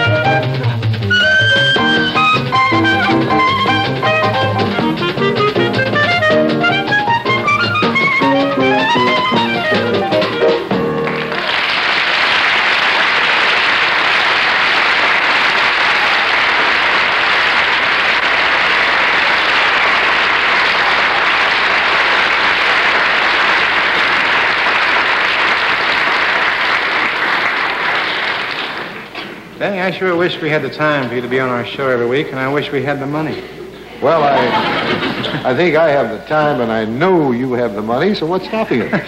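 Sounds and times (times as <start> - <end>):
audience applauding: 0.0 - 29.5, 34.0 - 35.8.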